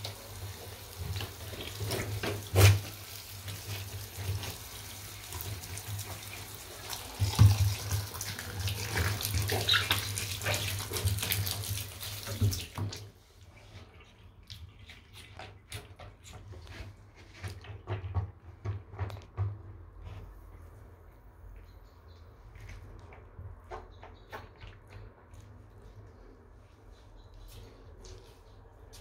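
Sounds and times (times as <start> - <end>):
shower spraying water: 0.0 - 13.2.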